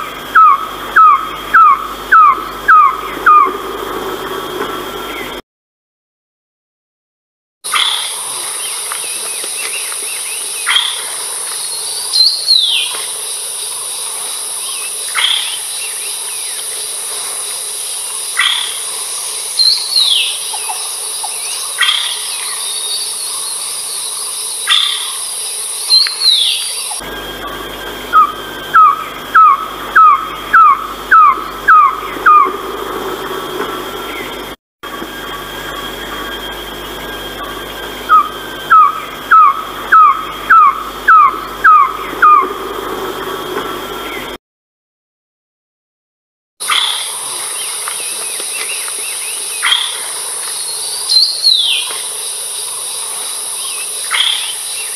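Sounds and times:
high insect drone: 0:00.0 - 0:05.4, 0:07.7 - 0:44.4, 0:46.6 - 0:54.9
bird falling call notes: 0:00.4 - 0:03.6, 0:25.9 - 0:34.3, 0:37.6 - 0:42.7.

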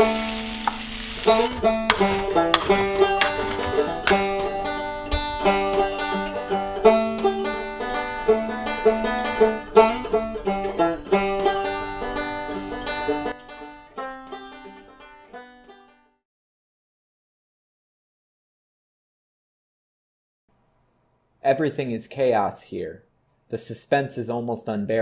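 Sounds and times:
bluegrass plucked string music: 0:00.0 - 0:16.0.

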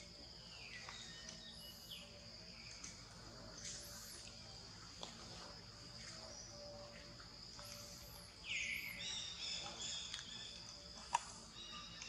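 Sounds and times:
high-pitched insect drone: 0:05.3 - 0:10.6.

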